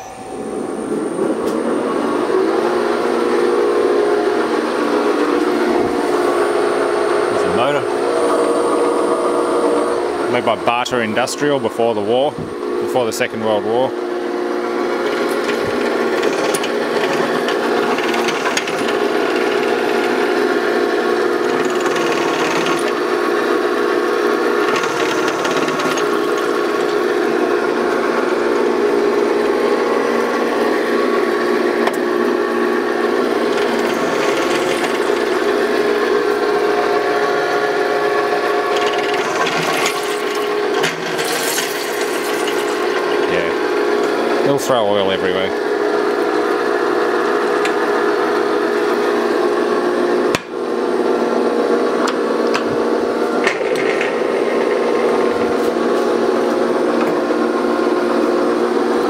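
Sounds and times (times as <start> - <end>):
lathe gears humming: 0.0 - 59.0.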